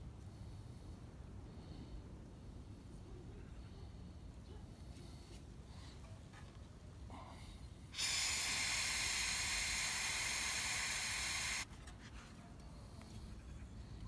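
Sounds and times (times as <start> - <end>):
gas hissing from valve: 7.9 - 11.7.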